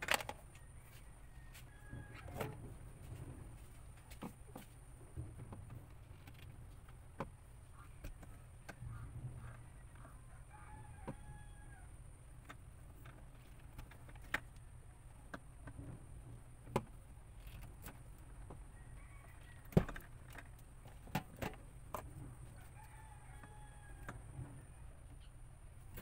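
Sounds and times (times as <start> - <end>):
rooster crowing faintly: 0.4 - 3.1, 8.8 - 12.2, 18.5 - 20.1, 22.3 - 26.0.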